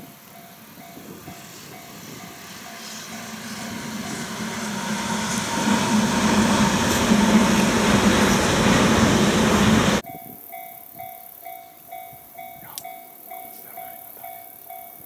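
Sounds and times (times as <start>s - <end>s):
electric train passing at speed: 0.0s - 15.0s.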